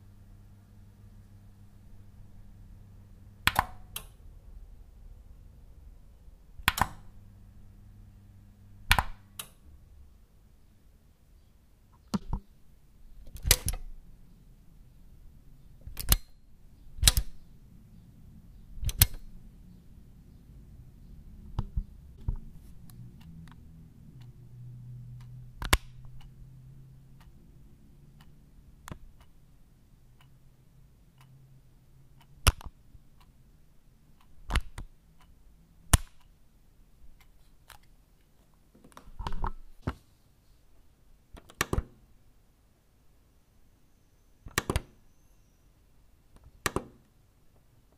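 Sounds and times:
faint low hum: 0.0s - 47.9s
switch clicks: 3.4s - 4.2s, 6.6s - 7.1s, 8.9s - 9.6s, 13.2s - 13.9s, 15.8s - 16.4s, 17.0s - 17.4s, 18.8s - 19.4s, 25.2s - 26.3s, 32.2s - 32.8s, 34.2s - 35.3s, 35.9s - 36.3s, 41.4s - 42.0s, 44.5s - 45.0s, 46.4s - 47.1s.

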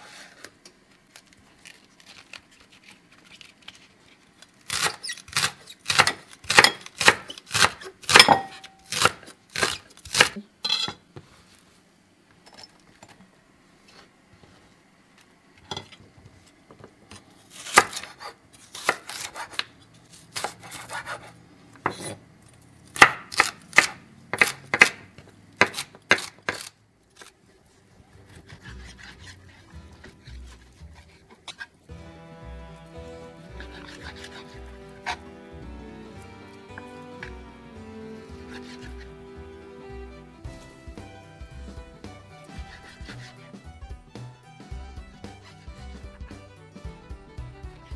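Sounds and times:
knife chopping on wooden board: 4.7s - 10.4s, 23.0s - 26.7s, 33.4s - 35.2s, 38.2s - 39.1s, 41.5s - 43.6s
faint music: 26.9s - 47.9s.

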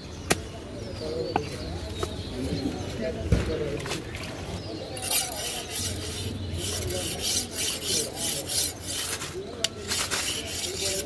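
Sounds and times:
knife scraping on whetstone: 5.0s - 11.0s.

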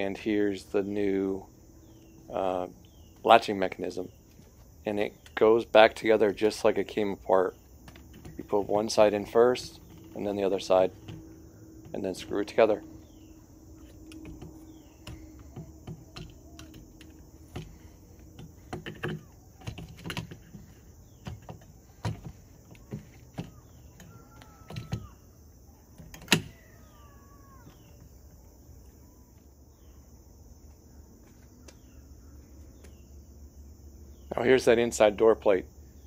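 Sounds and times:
door latch clicks and knocks: 26.0s - 26.6s.

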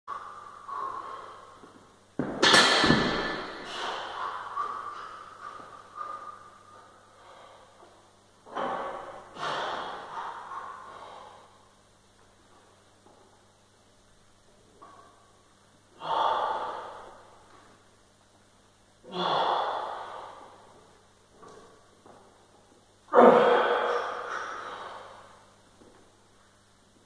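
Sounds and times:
man breathing hard: 0.1s - 2.0s, 3.1s - 11.9s, 15.9s - 17.4s, 19.0s - 20.8s, 23.2s - 25.6s.

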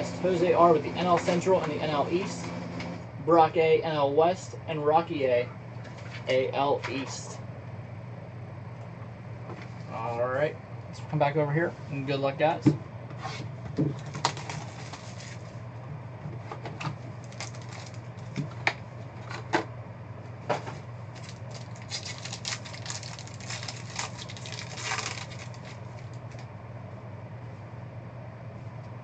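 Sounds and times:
steady low hum: 0.0s - 29.0s
foil wrapper crinkling: 14.0s - 15.5s, 17.2s - 18.4s, 21.1s - 26.4s.

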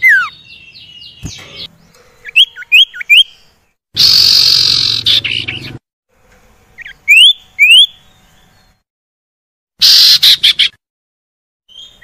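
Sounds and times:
harsh rasping bird call: 4.0s - 5.8s, 9.8s - 10.8s.

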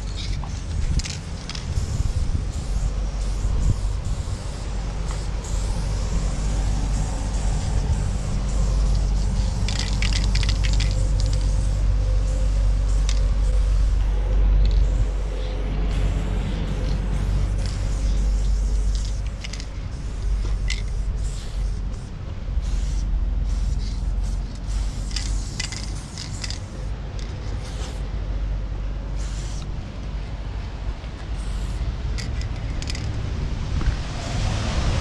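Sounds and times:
low rumble: 0.0s - 26.0s
spray paint can hissing: 0.0s - 28.1s, 29.1s - 29.7s, 31.4s - 33.2s.

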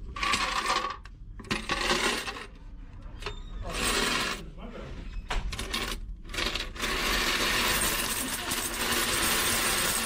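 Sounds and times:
coins clattering into plastic bag: 5.6s - 10.0s.

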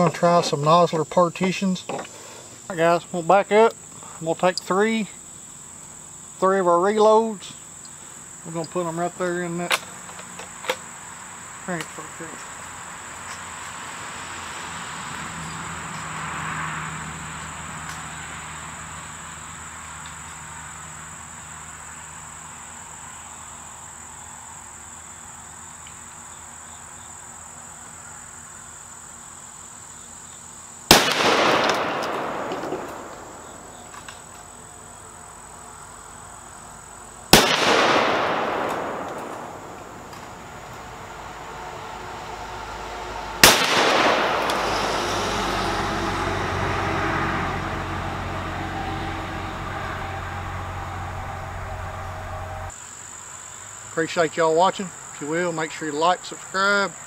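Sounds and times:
crickets chirping: 0.0s - 57.0s
explosive charge bursting: 30.9s - 33.9s, 37.3s - 41.1s, 43.4s - 45.8s
rifle shots with rolling echo: 30.9s - 34.3s, 37.3s - 40.9s, 43.4s - 45.2s.

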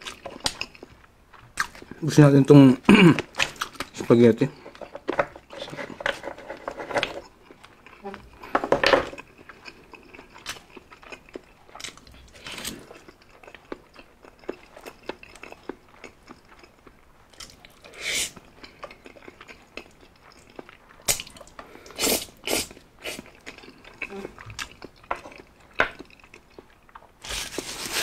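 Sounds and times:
person chewing with wet smacks: 0.0s - 2.0s, 9.2s - 27.2s.

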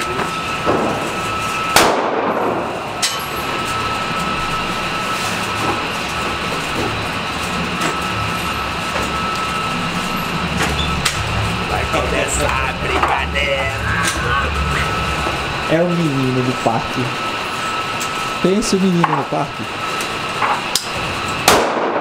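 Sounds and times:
gunshots echoing indoors: 1.7s - 2.8s, 21.4s - 22.0s.

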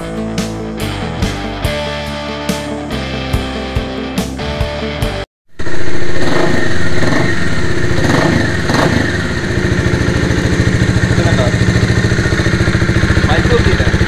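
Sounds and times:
rock music: 0.0s - 5.3s
motorcycle engine running: 5.5s - 14.0s.

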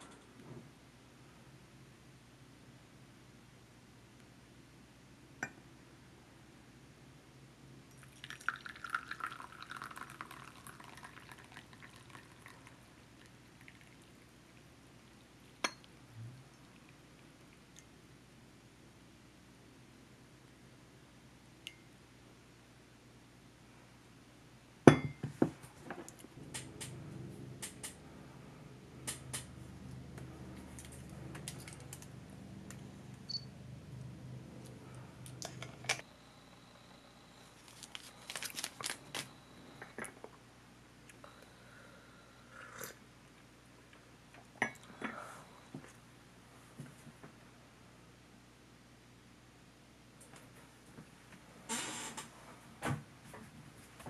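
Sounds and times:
tea pouring into a cup: 7.9s - 15.6s
low pulsing hum: 26.3s - 37.0s.

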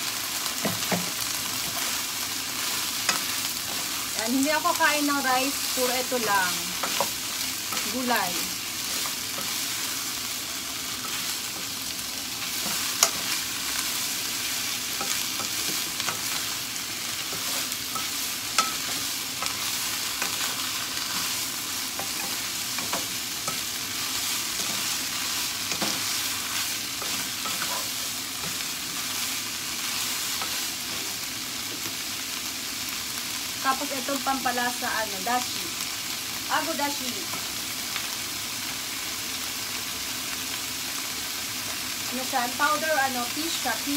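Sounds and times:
vegetables sizzling in hot oil: 0.0s - 43.9s.

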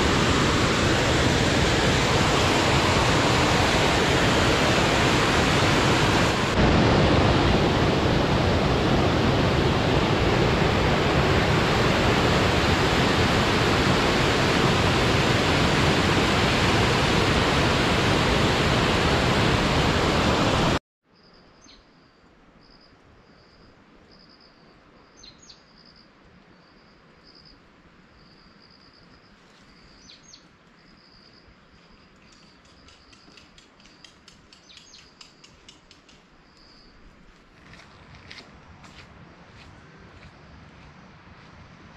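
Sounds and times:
waterfall rushing: 0.0s - 20.8s.

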